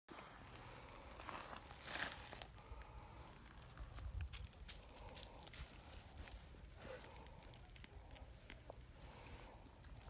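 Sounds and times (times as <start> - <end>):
rustling and crackling on dry leaves: 0.4 - 10.0.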